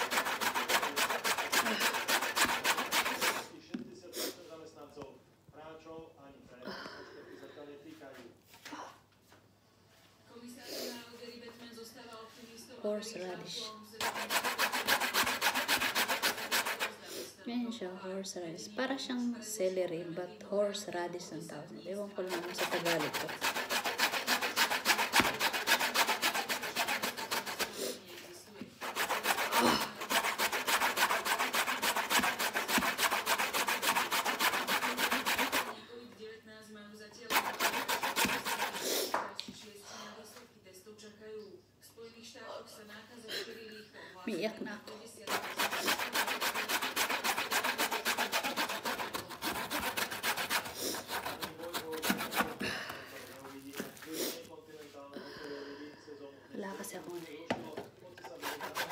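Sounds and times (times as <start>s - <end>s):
root rasping on metal grater: 0.0s - 3.5s, 14.0s - 17.0s, 22.2s - 28.0s, 28.7s - 35.8s, 37.3s - 38.9s, 45.3s - 54.0s, 57.6s - 58.9s.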